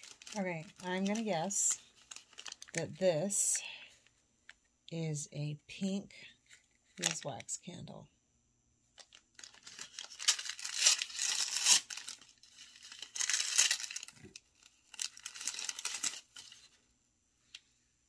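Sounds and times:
paper crinkling and tearing: 0.0 - 2.8, 9.0 - 16.8.

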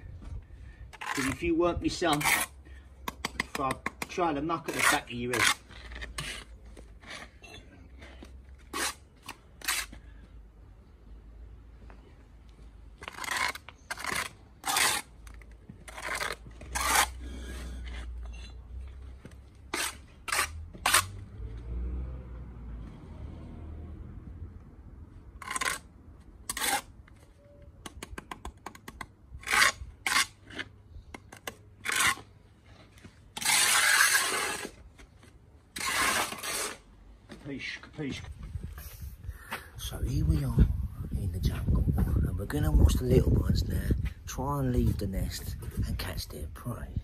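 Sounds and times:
trowel scraping mortar: 0.9 - 10.1, 13.0 - 21.2, 25.4 - 27.2, 27.8 - 36.9.

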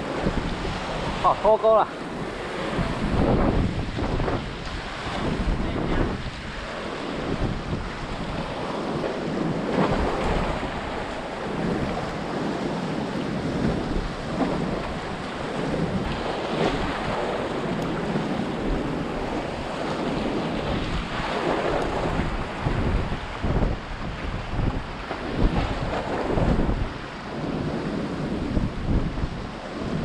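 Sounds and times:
sea waves splashing on concrete: 0.0 - 30.0
wind buffeting microphone: 0.0 - 30.0.

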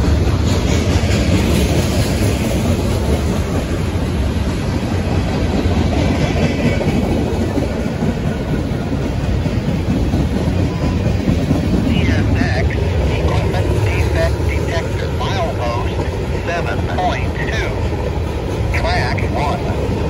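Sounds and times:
steel train wheels on rails: 0.0 - 20.0.

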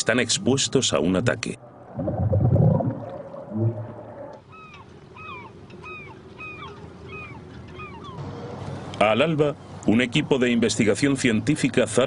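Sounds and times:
whale moaning underwater: 1.6 - 4.4.

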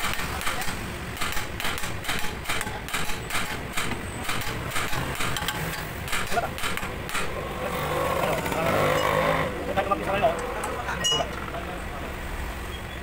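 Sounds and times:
hammer striking metal: 0.0 - 7.4.

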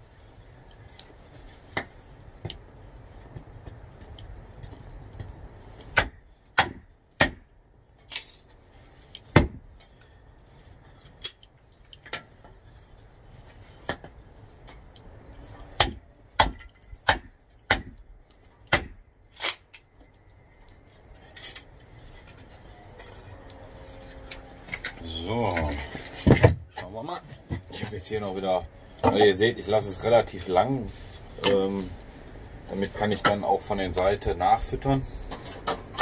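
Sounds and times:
wood being chopped: 5.8 - 7.5, 9.3 - 9.6, 15.8 - 18.0, 18.6 - 19.6, 26.2 - 26.6.

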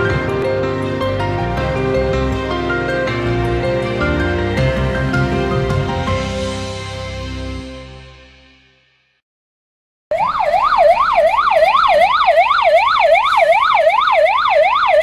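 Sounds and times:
fire engine siren yelping: 10.1 - 15.0.

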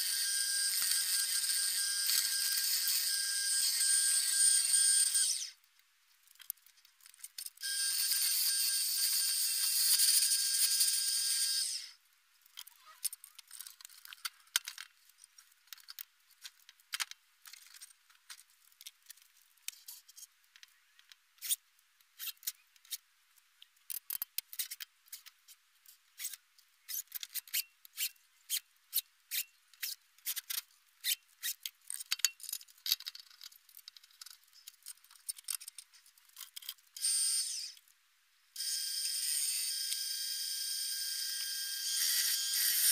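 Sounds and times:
clicks and knocks of handling: 12.5 - 21.2, 31.6 - 36.8.

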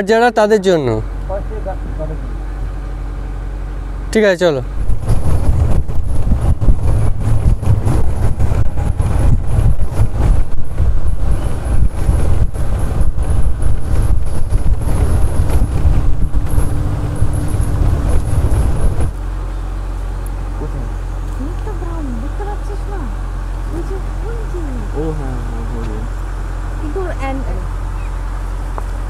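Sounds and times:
jeep engine driving: 0.0 - 29.0
vehicle body rattling: 4.7 - 25.0
wind buffeting microphone: 4.7 - 29.0.

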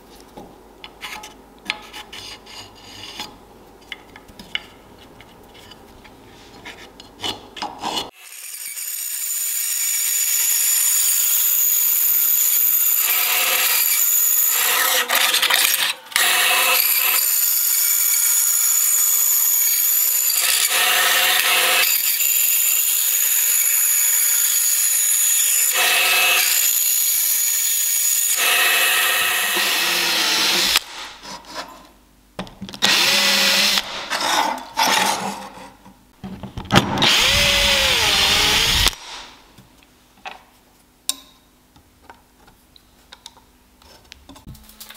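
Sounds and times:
drill cutting into metal plate: 8.2 - 30.8, 37.0 - 39.0.

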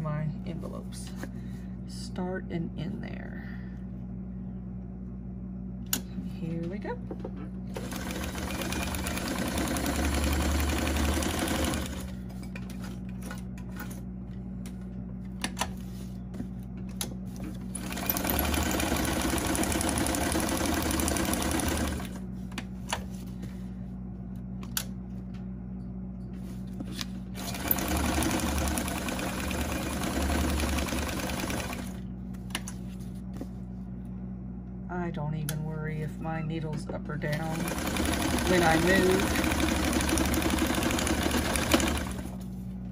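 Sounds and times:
steady low hum: 0.0 - 42.9
sewing machine stitching paper: 37.6 - 42.3.

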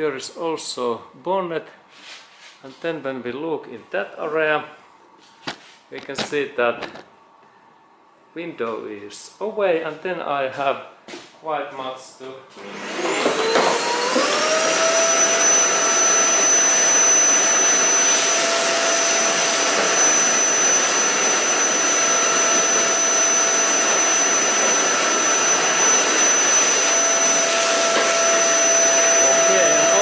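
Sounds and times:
vacuum cleaner whining: 12.6 - 30.0.

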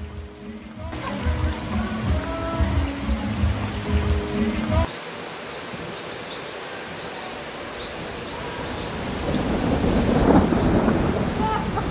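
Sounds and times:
steady rain: 0.0 - 11.9
rumble of thunder: 8.6 - 11.9.

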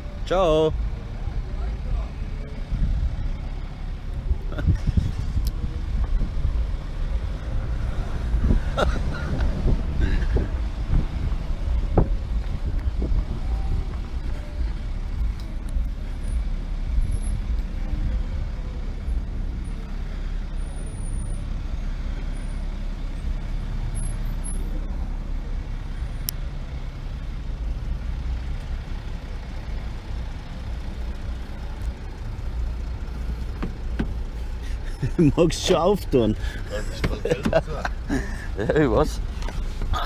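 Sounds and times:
wind rumbling on microphone: 4.2 - 16.0.

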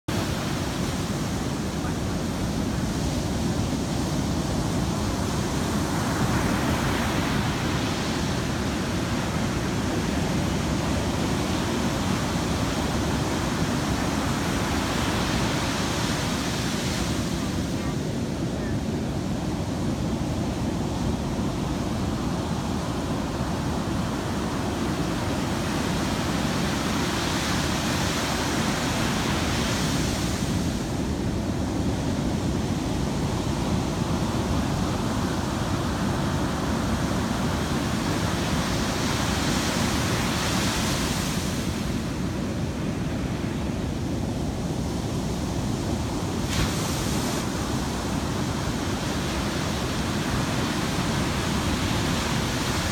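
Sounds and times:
ocean waves breaking: 45.2 - 52.9.

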